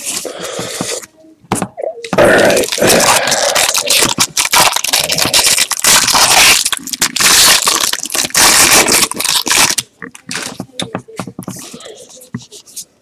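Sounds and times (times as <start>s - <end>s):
foil wrapper crinkling and tearing: 2.4s - 10.6s.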